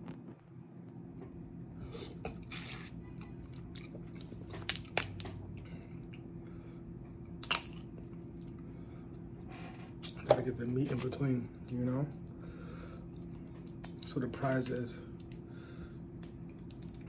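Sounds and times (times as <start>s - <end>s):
crab shells cracking: 4.5s - 5.4s, 7.4s - 7.9s.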